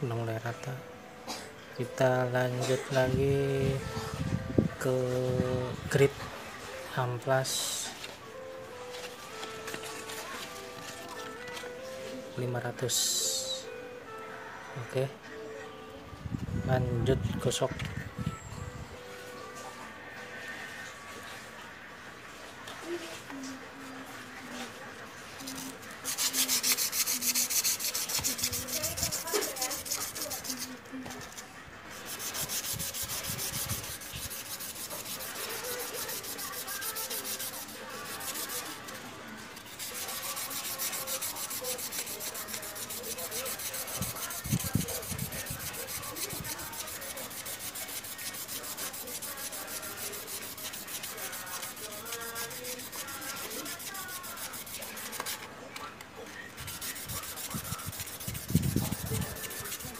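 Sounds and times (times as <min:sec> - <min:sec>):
stone rubbed on sandpaper: 0:25.4 - 0:39.0, 0:39.6 - 0:55.5, 0:56.5 - 0:59.9.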